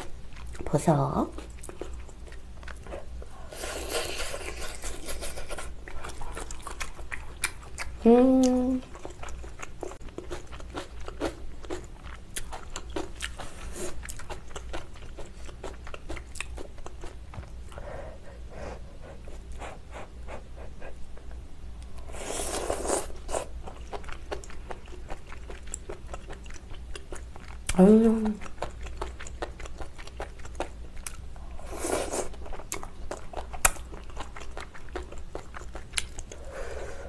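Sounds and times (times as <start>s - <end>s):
chewing and biting: 1.3s - 8.0s, 8.8s - 17.6s, 22.5s - 27.8s, 28.4s - 36.4s.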